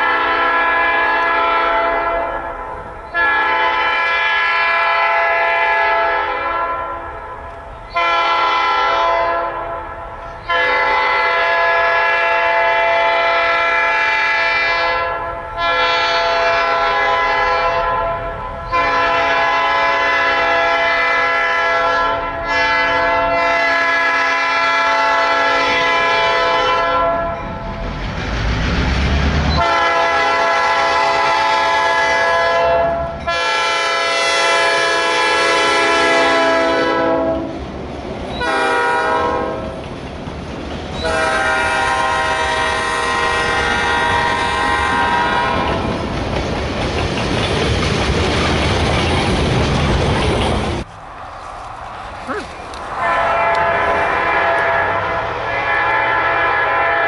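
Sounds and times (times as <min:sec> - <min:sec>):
locomotive air horn blasts: 0:00.0 - 0:27.4, 0:29.6 - 0:37.5, 0:38.4 - 0:39.7, 0:41.0 - 0:45.8, 0:53.0 - 0:57.0
locomotive engine and wheel rumble: 0:25.9 - 0:31.8, 0:37.4 - 0:56.5.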